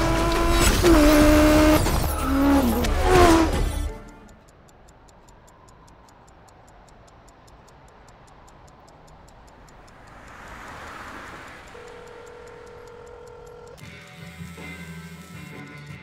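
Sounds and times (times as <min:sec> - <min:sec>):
passing car rush: 0:00.0 - 0:13.8
stopwatch ticking fast: 0:03.0 - 0:16.0
steady held tone: 0:09.4 - 0:13.8.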